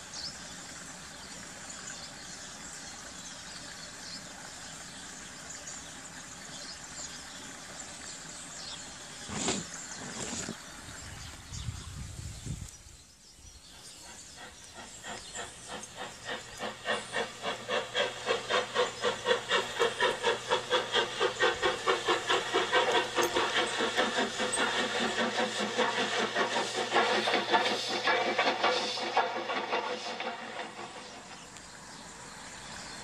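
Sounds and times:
steam locomotive chuffing: 0.0 - 10.3, 13.4 - 33.0
steam hissing: 13.6 - 33.0.

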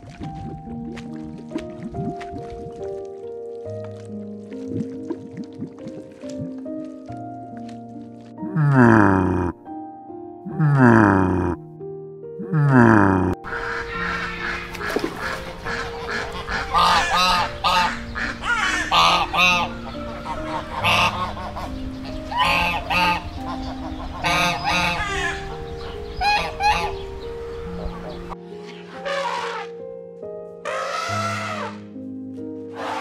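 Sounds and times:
ducks honking calls: 12.7 - 27.0, 27.9 - 29.8, 30.6 - 31.9, 32.7 - 33.0.

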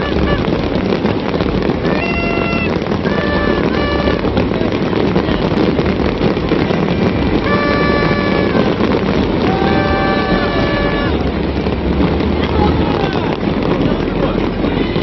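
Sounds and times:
fireworks crackling and banging: 0.0 - 15.0
steady held tones: 1.8 - 5.6, 7.2 - 13.5.

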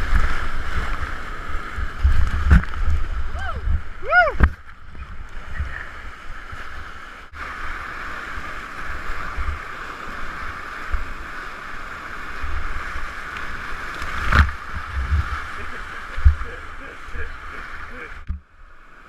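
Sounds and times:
water slapping a boat: 0.0 - 19.0
whitewater rapids rushing: 5.1 - 19.0.

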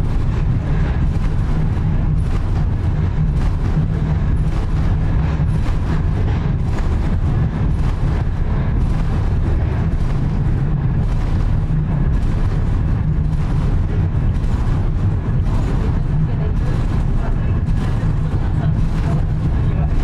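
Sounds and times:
railway car rumbling on track: 0.0 - 20.0.

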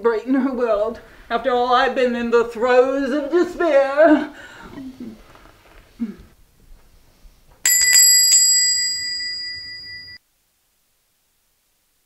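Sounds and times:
small metal bell ringing: 7.7 - 10.2.

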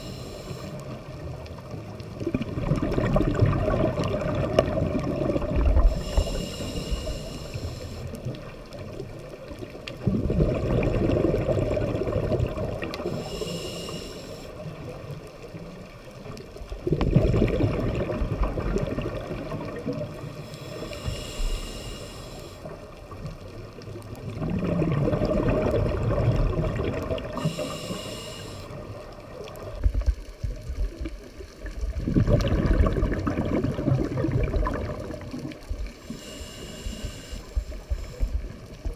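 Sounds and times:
regulator hiss on inhale: 0.0 - 1.2, 5.8 - 8.5, 12.7 - 14.8, 20.2 - 23.0, 27.2 - 29.0, 35.8 - 38.9
exhaled bubbles bursting: 2.2 - 6.0, 9.9 - 13.1, 16.8 - 20.2, 24.2 - 27.5, 31.8 - 35.9.

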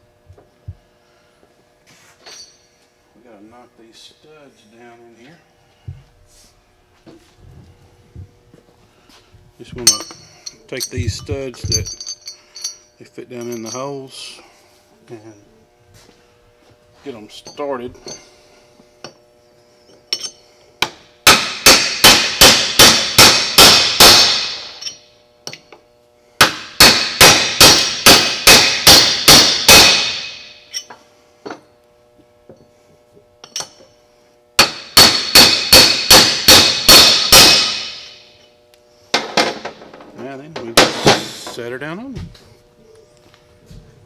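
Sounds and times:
hammer striking metal punch: 20.1 - 25.6, 26.4 - 31.6, 34.6 - 38.4, 40.6 - 41.4.

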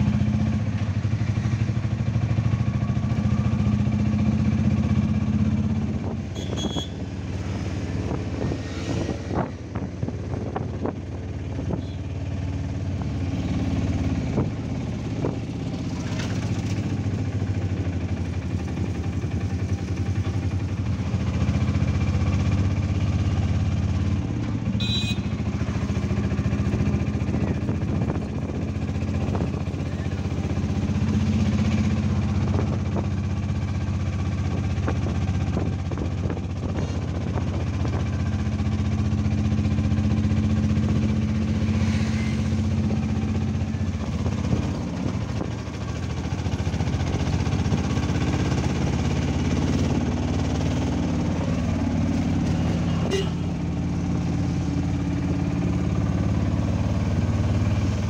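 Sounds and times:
auto-rickshaw engine running: 0.0 - 58.0.

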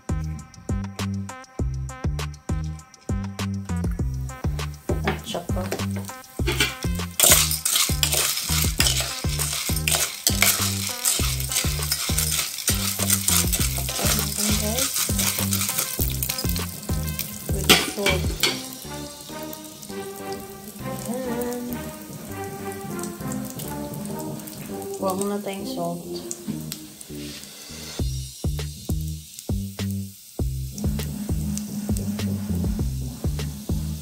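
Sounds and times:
music with steady bass beat: 0.0 - 19.2, 28.0 - 34.0
popcorn sizzling in hot oil: 0.0 - 34.0
spoon stirring in a pot: 5.0 - 18.9.

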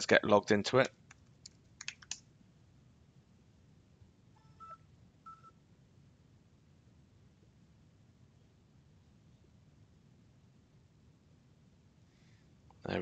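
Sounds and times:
computer keyboard clicks: 0.8 - 2.2
faint short electronic beeps: 4.4 - 5.6.

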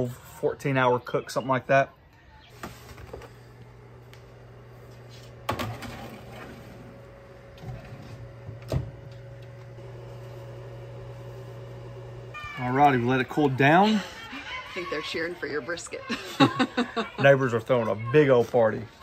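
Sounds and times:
toaster oven humming: 3.0 - 15.2.

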